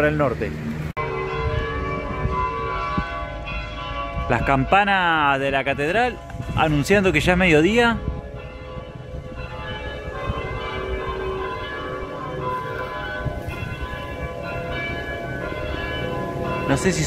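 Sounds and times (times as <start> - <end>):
church bells ringing: 1.0 - 17.0.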